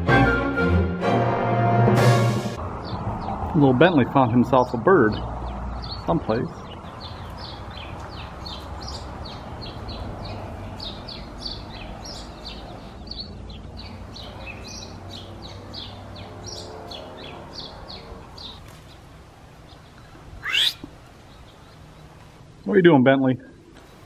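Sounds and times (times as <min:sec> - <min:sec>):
small bird chirping: 0:05.7 - 0:22.7
loud sharp rising squeal: 0:20.4 - 0:20.8.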